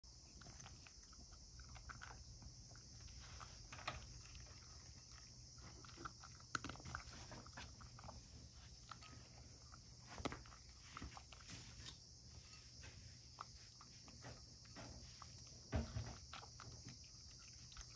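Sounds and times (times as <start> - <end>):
cat crunching dry kibble: 0.2 - 12.1.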